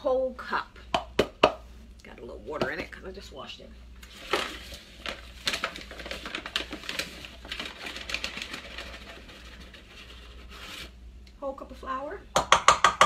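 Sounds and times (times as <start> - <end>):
paper bag crinkling: 4.0 - 10.9.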